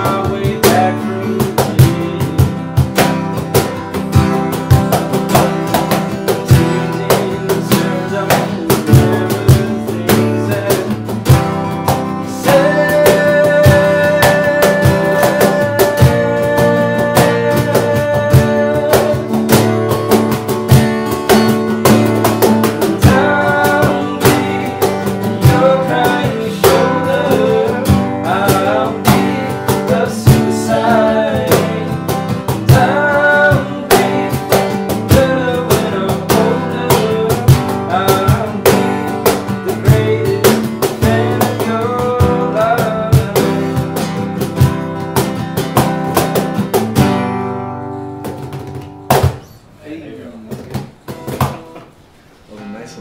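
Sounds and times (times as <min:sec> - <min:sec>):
person singing: 0:00.0 - 0:03.3, 0:05.2 - 0:19.8, 0:21.8 - 0:44.2
acoustic guitar strumming: 0:00.0 - 0:53.0
cajon beat: 0:00.0 - 0:53.0.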